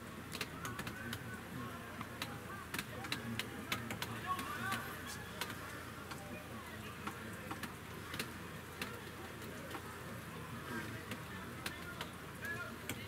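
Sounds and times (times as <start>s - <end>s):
raindrops ticking near microphone: 0.0s - 13.0s.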